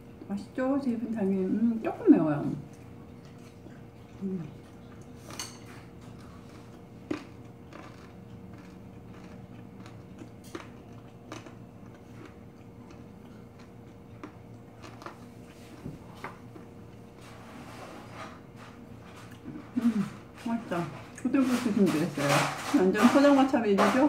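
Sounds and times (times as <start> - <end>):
close chewing: 2.6 - 17.2
chopsticks clinking on dishes: 5.2 - 5.9.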